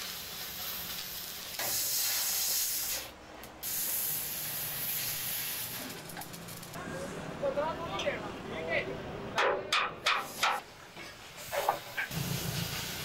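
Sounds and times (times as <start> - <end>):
cutting torch hissing: 0.0 - 6.8, 11.3 - 13.0.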